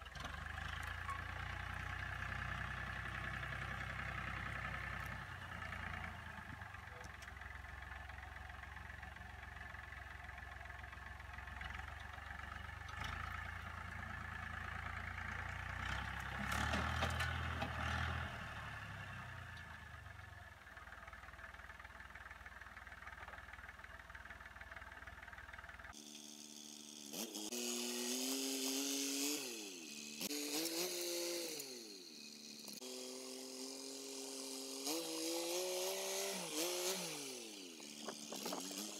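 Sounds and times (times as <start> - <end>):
tractor diesel engine running: 0.0 - 26.0.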